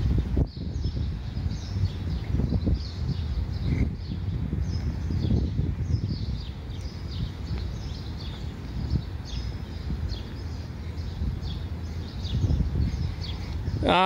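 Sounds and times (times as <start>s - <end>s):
birds chirping: 0.0s - 14.0s
low microphone rumble: 0.0s - 14.0s.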